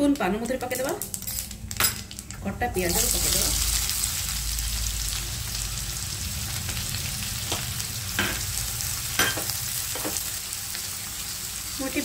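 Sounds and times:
onion sizzling in oil: 0:00.0 - 0:12.0.

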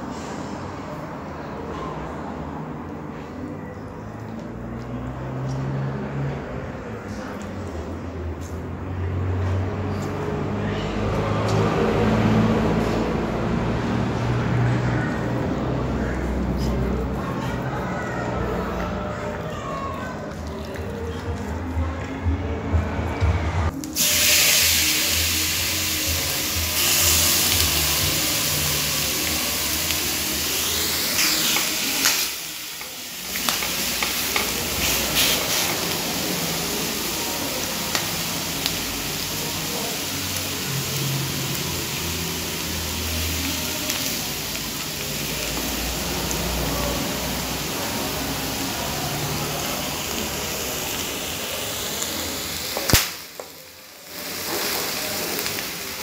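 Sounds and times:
food sizzling in a hot pan: 0:23.8 - 0:56.0.

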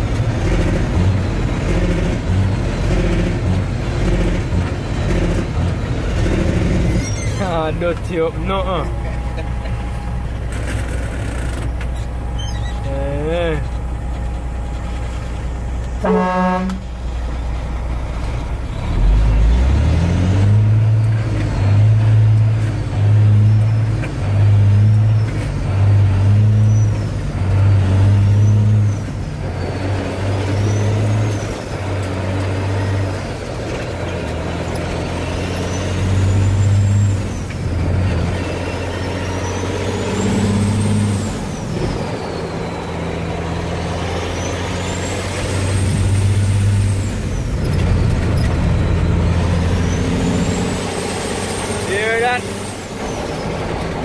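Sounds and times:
truck engine pulling: 0:00.0 - 0:54.0
horn-like toot: 0:16.0 - 0:16.9.

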